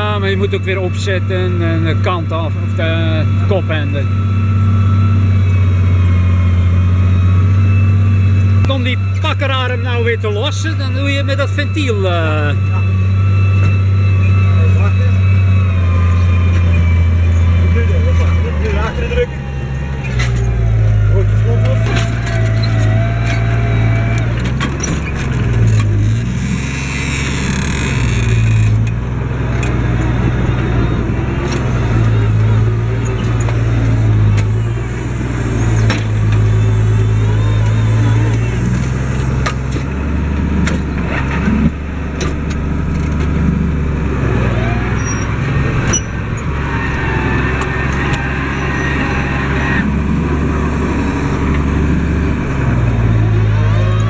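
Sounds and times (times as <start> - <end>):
tractor diesel engine under load: 0.0 - 54.0
cab and implement rattles: 16.5 - 30.6.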